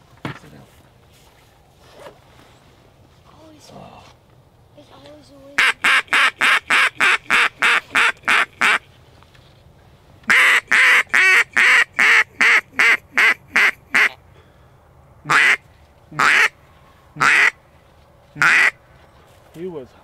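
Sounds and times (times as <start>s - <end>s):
duck call quacks: 5.6s - 8.8s, 10.3s - 14.2s, 15.3s - 15.6s, 16.2s - 16.6s, 17.2s - 17.6s, 18.4s - 18.8s.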